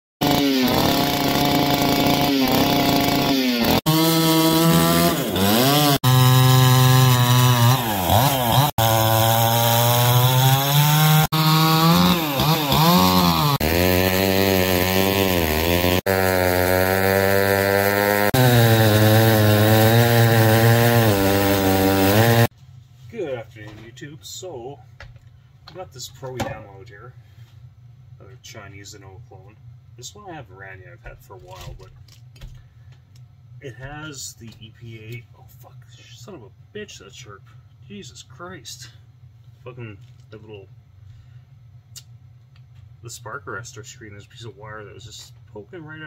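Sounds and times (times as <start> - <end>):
chainsaws cutting wood: 0.2 - 22.5.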